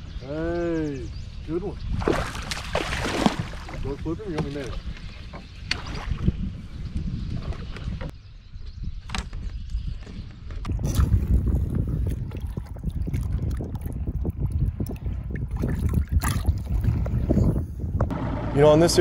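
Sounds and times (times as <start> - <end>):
wind on microphone: 0.0 - 18.1
water sloshing and splashing: 1.9 - 6.4, 10.7 - 17.6
water lapping against boat hull: 2.0 - 6.5, 10.7 - 17.6.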